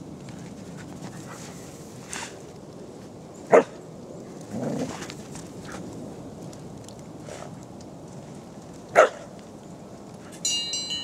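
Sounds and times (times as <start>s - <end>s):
dog barking: 3.5s - 3.8s, 9.0s - 9.3s.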